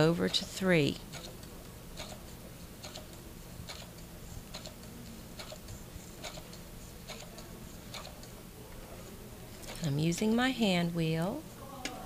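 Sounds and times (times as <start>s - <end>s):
sewing machine ticking: 2.0s - 2.2s, 2.8s - 8.3s.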